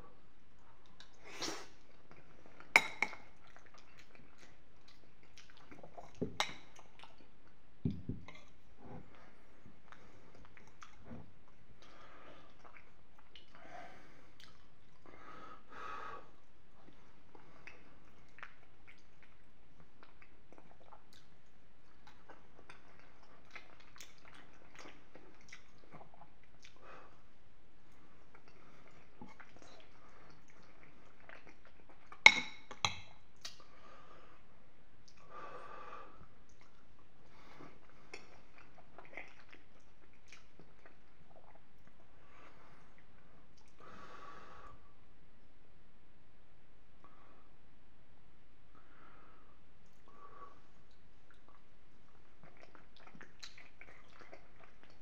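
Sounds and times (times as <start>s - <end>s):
chewing with wet mouth sounds: 0.4s - 15.2s, 16.4s - 27.2s, 27.9s - 33.8s, 36.2s - 43.8s, 50.7s - 55.0s
wet mouth clicks from chewing: 14.4s - 15.0s, 17.6s - 26.8s, 38.1s - 42.0s, 50.9s - 55.0s
small mouth clicks: 52.4s - 55.0s.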